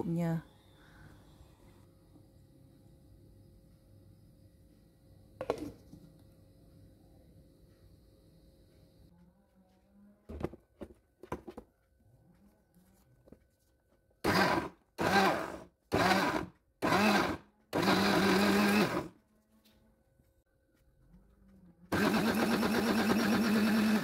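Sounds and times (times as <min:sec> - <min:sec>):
blender grinding: 0:14.2 - 0:19.1, 0:21.9 - 0:24.0.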